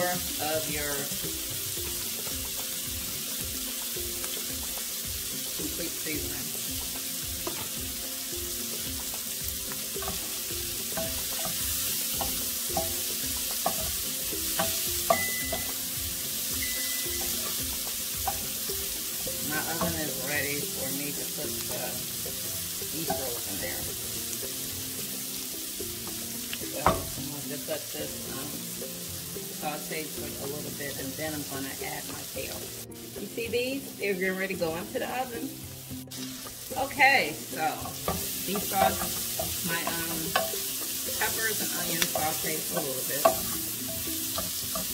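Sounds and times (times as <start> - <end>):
vegetables sizzling in a skillet: 0.0 - 44.9
spatula scraping a pan: 9.0 - 21.2, 37.6 - 44.9.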